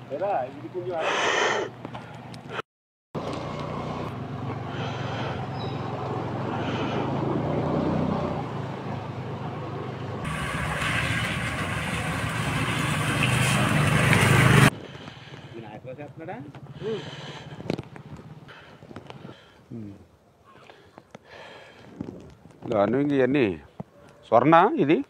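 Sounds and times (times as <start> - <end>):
motor scooter engines: 3.2 - 19.2.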